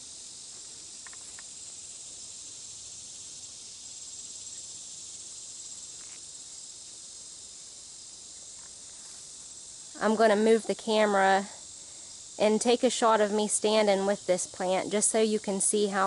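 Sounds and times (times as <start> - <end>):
insects droning: 0.0 - 16.0
faint ticks: 0.5 - 1.5, 5.9 - 6.3.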